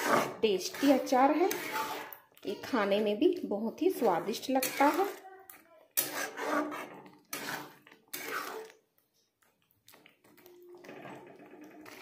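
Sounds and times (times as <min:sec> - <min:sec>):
metal spatula scraping steel pan: 0:00.0 - 0:08.8, 0:10.8 - 0:12.0.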